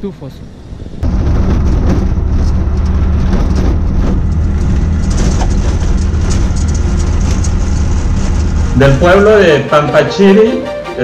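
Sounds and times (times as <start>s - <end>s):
rattles: 1.0s - 9.6s.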